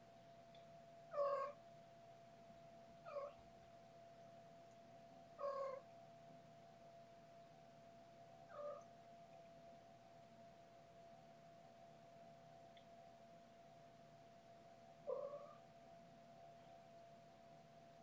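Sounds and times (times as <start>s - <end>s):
kitten meowing: 1.1s - 1.6s, 5.4s - 5.8s, 15.1s - 15.6s.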